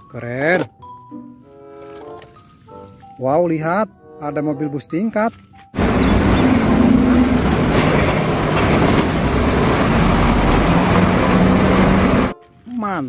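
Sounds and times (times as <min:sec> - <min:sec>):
large vehicle rumbling: 0:05.8 - 0:12.4
low engine hum: 0:05.8 - 0:12.4.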